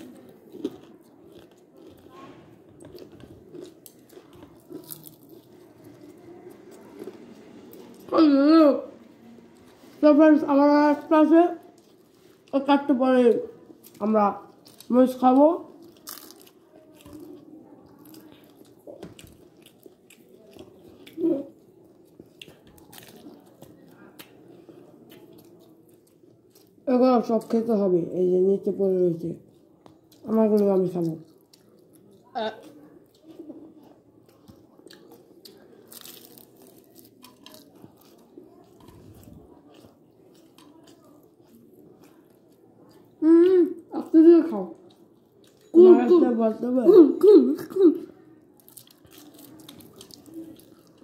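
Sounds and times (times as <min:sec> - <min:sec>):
person chewing food: 0:00.0 - 0:08.1, 0:11.6 - 0:12.5, 0:13.6 - 0:14.9, 0:15.7 - 0:26.8, 0:29.4 - 0:43.9, 0:44.7 - 0:45.7, 0:48.5 - 0:51.0.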